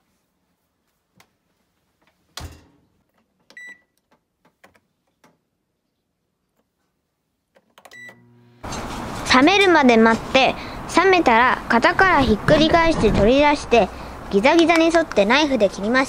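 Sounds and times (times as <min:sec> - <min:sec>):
microwave beep: 0:03.6 - 0:03.9, 0:07.9 - 0:08.6
microwave humming: 0:08.0 - 0:09.3.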